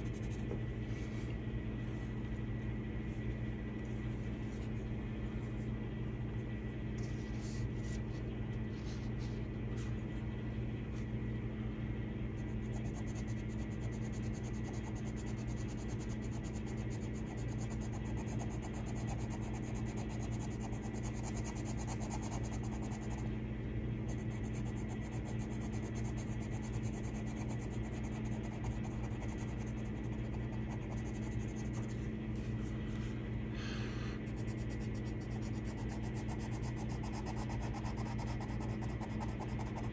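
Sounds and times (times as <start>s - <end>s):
pencil scratching on paper: 0.0s - 0.5s, 12.4s - 23.2s, 24.1s - 32.0s, 34.3s - 39.9s
steady low hum: 0.0s - 39.9s.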